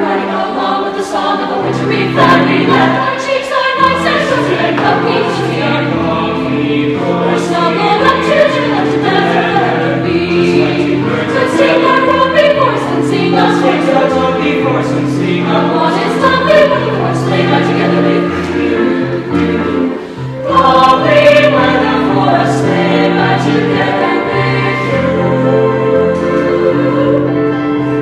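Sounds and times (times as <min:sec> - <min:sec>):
choir breath: 0:00.0 - 0:28.0
choir singing a carol: 0:00.0 - 0:28.0.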